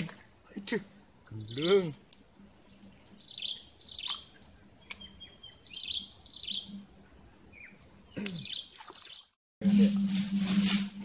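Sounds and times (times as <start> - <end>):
bird chirping: 1.2 - 1.9, 2.6 - 9.4.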